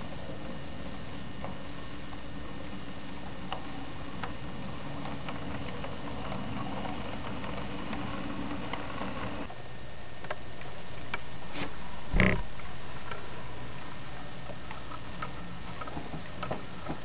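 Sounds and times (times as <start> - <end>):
wheels clicking over rail joints: 0.0 - 9.5, 14.4 - 17.0
model train rolling hum: 0.0 - 17.0.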